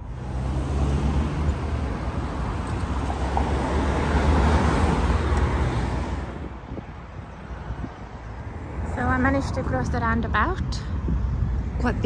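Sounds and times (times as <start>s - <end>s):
vehicle passing close: 0.0s - 6.5s.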